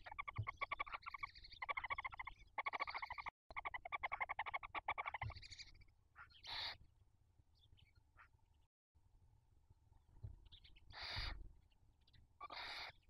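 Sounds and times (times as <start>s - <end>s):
owls chittering: 0.0s - 5.6s, 6.2s - 6.8s, 10.9s - 11.4s, 12.4s - 13.0s
owl hissing: 6.5s - 6.8s, 11.0s - 11.4s, 12.4s - 13.0s.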